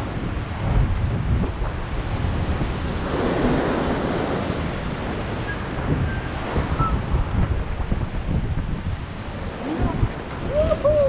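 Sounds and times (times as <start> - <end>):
ocean surf breaking: 0.0 - 11.0
wind rumbling on microphone: 0.0 - 11.0.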